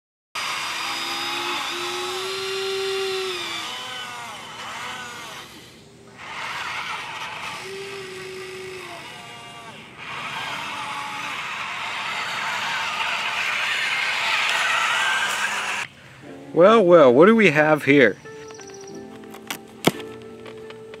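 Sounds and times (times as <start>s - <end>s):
electric motors whining: 0.4s - 15.9s.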